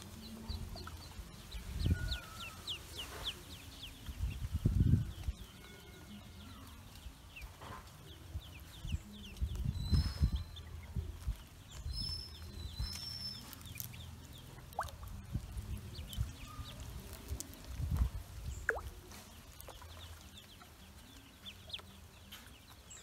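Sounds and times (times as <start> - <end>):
ducklings peeping: 0.0 - 23.0
water splashing in a tub: 14.6 - 15.1, 18.6 - 19.0.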